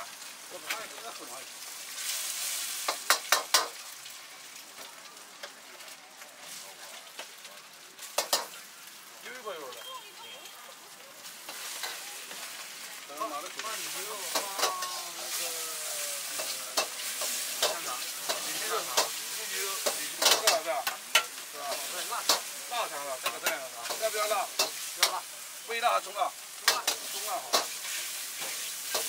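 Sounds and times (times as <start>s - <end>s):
rice sizzling: 0.0s - 29.0s
metal ladle clanking against wok: 19.8s - 21.4s.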